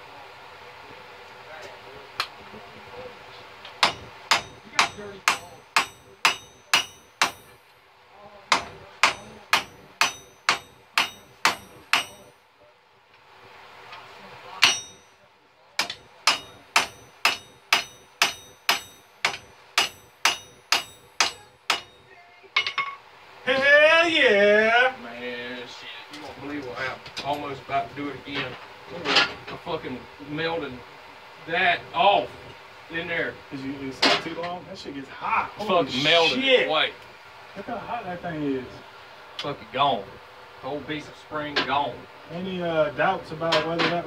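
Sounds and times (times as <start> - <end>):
hammer ringing on anvil: 3.8 - 7.6, 8.5 - 12.4, 14.6 - 15.2, 15.8 - 23.0.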